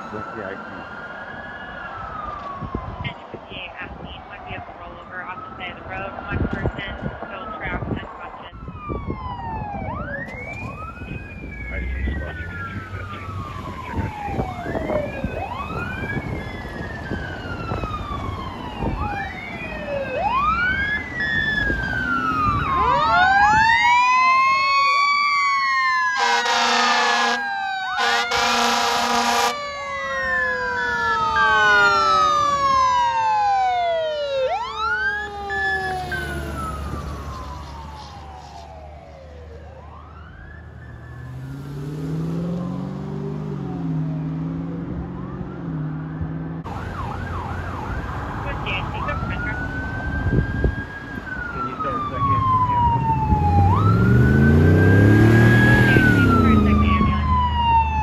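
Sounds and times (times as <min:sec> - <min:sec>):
sirens wailing: 0:00.0 - 0:58.0
air horn blasts: 0:26.2 - 0:29.6.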